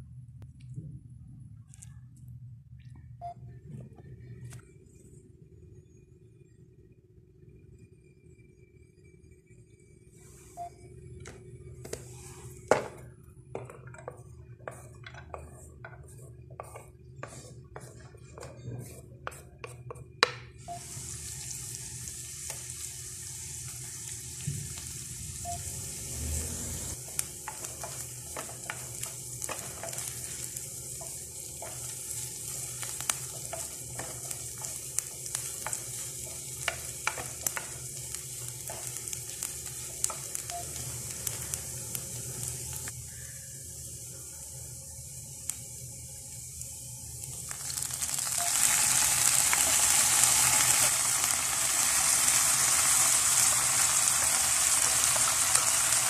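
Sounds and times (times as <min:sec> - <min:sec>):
wooden spatula scraping a pan: 0:13.6 - 0:20.0, 0:26.6 - 0:40.5
onions sizzling in oil: 0:20.6 - 0:56.0.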